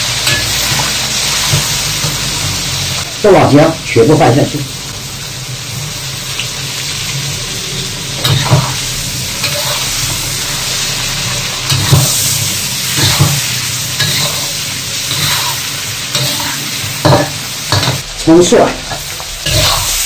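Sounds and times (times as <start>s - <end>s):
food sizzling in hot oil: 0.0s - 20.0s
metal spatula scraping a wok: 7.6s - 18.0s, 18.8s - 20.0s.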